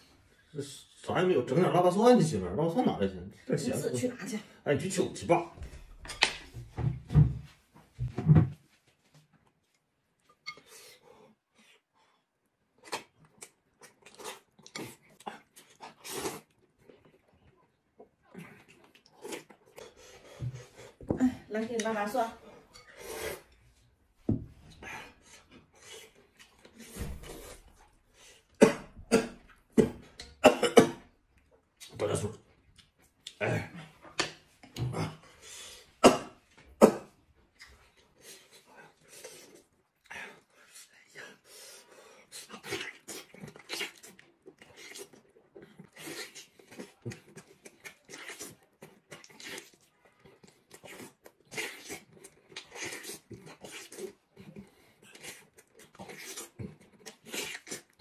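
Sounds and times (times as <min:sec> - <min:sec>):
man chewing with wet smacking: 0:09.3 - 0:21.0, 0:22.7 - 0:30.5, 0:31.2 - 0:35.2, 0:36.4 - 0:58.0.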